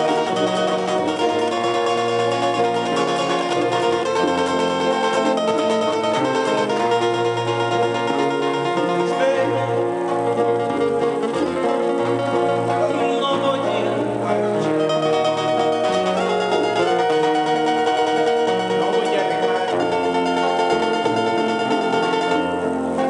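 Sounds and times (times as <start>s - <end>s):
acoustic guitars strumming: 0.0s - 23.0s
upright bass line: 0.0s - 23.0s.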